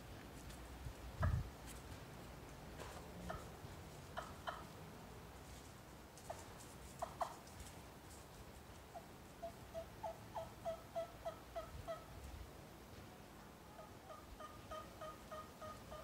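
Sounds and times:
hen turkey yelps: 9.4s - 12.1s, 13.8s - 16.0s
turkey call notes: 13.7s - 16.0s.

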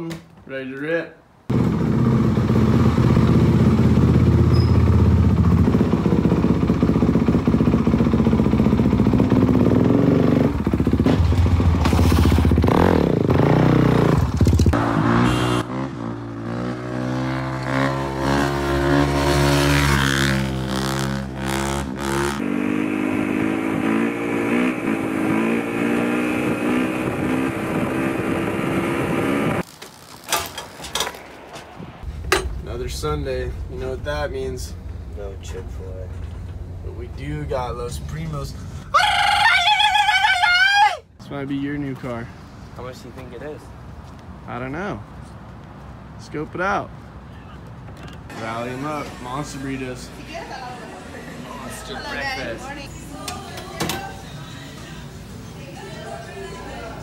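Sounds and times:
dirt bike engine revving: 1.5s - 29.6s.

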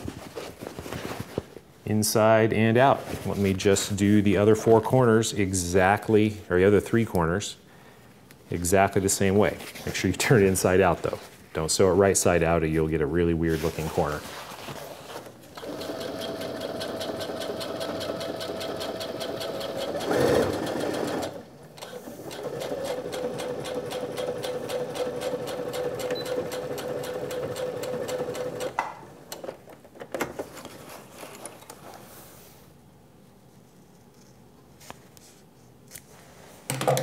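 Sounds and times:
sewing machine stitching: 15.5s - 28.8s.

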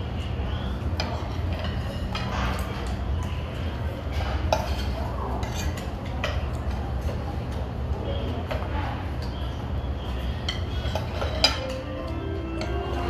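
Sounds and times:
knife and fork scraping a plate: 1.0s - 2.9s, 4.1s - 6.4s, 10.4s - 11.8s.

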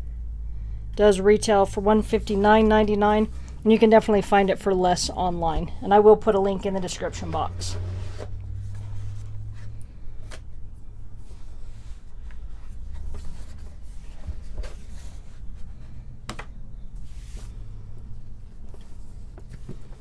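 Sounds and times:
book rubbing and rustling: 6.4s - 20.0s
cardboard lid sliding off box: 7.7s - 9.3s.

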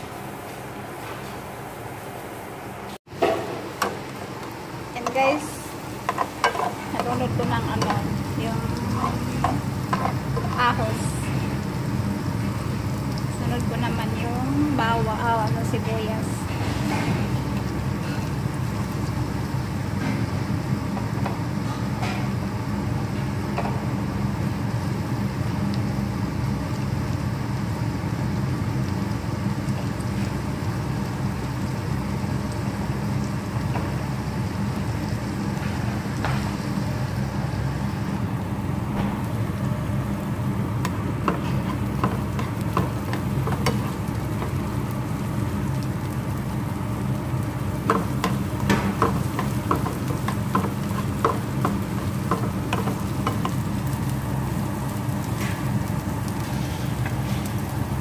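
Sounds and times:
onion sizzling in oil: 0.0s - 58.0s
steady low hum: 0.0s - 58.0s.

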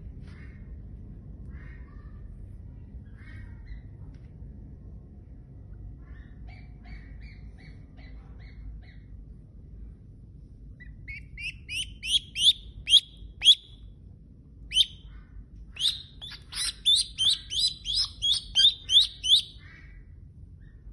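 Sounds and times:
duckling peeping: 10.8s - 13.8s, 14.7s - 15.1s, 15.7s - 19.7s.

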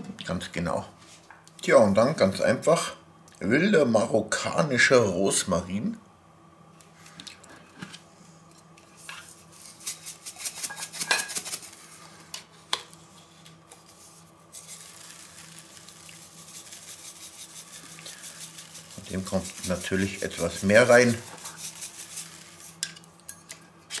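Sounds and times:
dried herbs rustling from tin: 9.2s - 12.2s, 13.3s - 22.9s.

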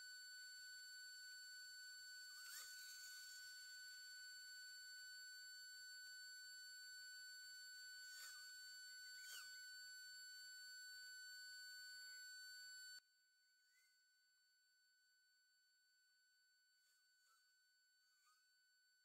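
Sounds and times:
high-pitched electronic whine: 0.0s - 13.0s.

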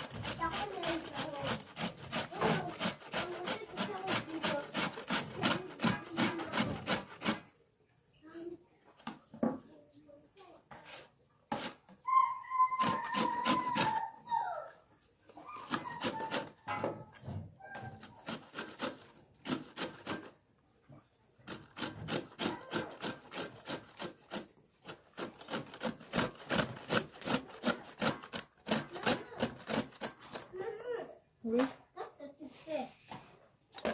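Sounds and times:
beetroot grated on metal grater: 0.0s - 7.4s, 12.8s - 14.0s, 15.6s - 17.0s, 17.7s - 20.4s, 21.5s - 30.7s.

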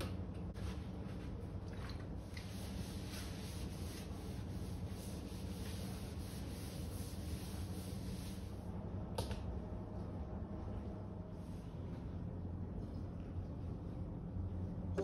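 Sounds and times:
steady low hum: 0.0s - 15.0s
paper towel rubbing metal: 2.4s - 8.6s.

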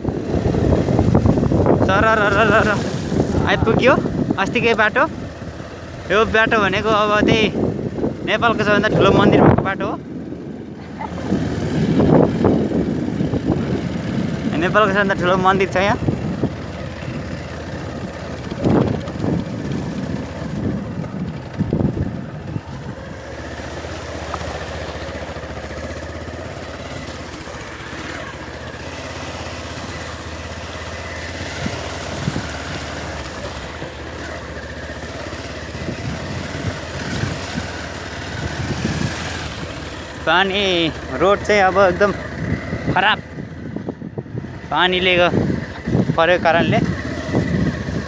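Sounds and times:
motorcycle engine running: 0.0s - 48.0s.

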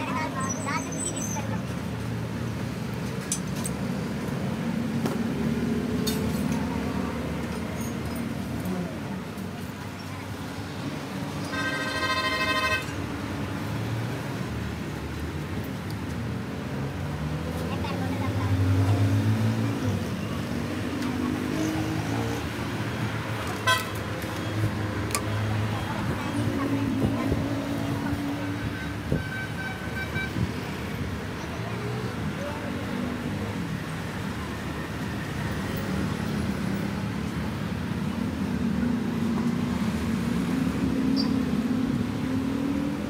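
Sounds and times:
road traffic hum: 0.0s - 43.0s
car horn toot: 11.5s - 13.0s, 23.6s - 24.0s.

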